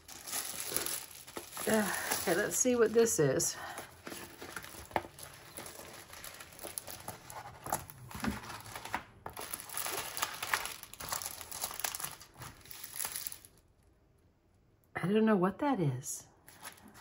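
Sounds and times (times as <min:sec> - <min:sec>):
plastic film crinkling: 0:00.0 - 0:13.8.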